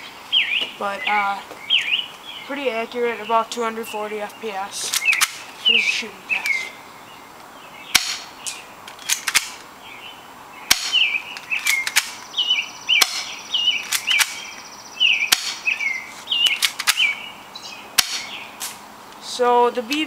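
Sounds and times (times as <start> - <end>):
bird chirping: 0.0 - 20.0
airsoft pistol shots: 7.9 - 8.3, 10.7 - 11.1, 13.0 - 14.4, 15.3 - 15.7, 18.0 - 18.8.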